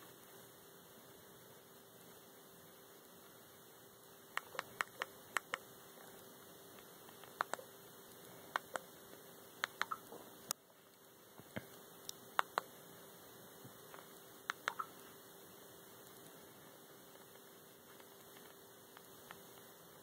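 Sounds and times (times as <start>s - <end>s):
faint electrical hum: 0.0s - 20.0s
remote-control buttons clicking: 4.3s - 5.6s, 7.1s - 7.7s, 8.5s - 8.9s, 9.6s - 10.1s, 12.1s - 12.7s, 14.0s - 15.0s.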